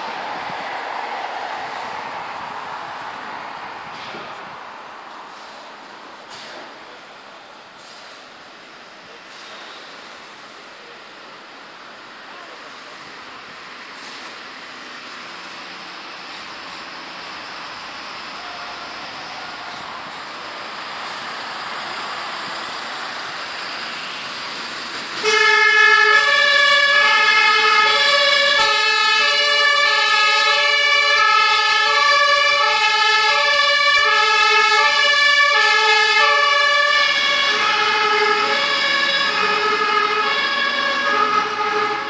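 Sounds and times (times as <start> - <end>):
vehicle noise: 0.0 - 42.0
two-tone siren: 25.2 - 42.0.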